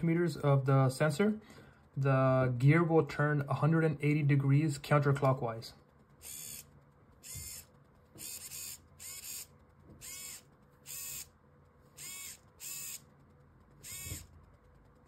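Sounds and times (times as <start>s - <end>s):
servo motor whirring: 6.2s - 11.3s, 11.9s - 13.1s, 13.8s - 14.3s.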